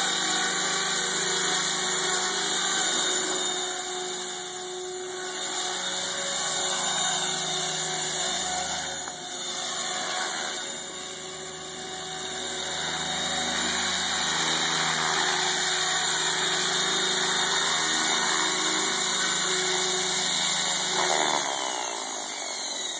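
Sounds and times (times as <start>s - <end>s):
rc helicopter motor whine: 0.0s - 22.9s.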